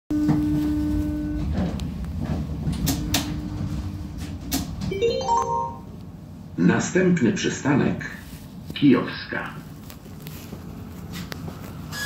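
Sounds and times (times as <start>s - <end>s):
tram low rumble: 0.1s - 5.0s, 5.8s - 12.0s
rising electronic chime: 4.9s - 5.9s.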